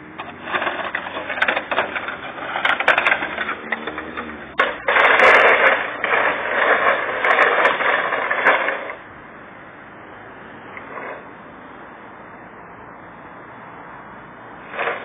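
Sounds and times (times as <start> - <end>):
plastic tray scraping on asphalt: 0.0 - 9.0, 10.8 - 11.3, 14.6 - 15.0.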